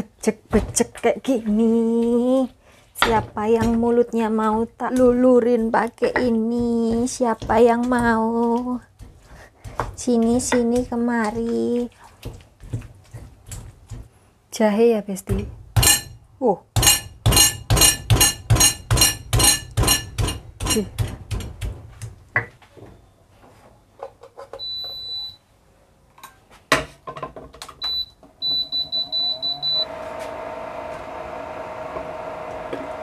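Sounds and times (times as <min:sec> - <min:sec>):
appliance button beeps: 0:24.6 - 0:25.4, 0:27.8 - 0:29.9
appliance hum: 0:27.9 - 0:33.0.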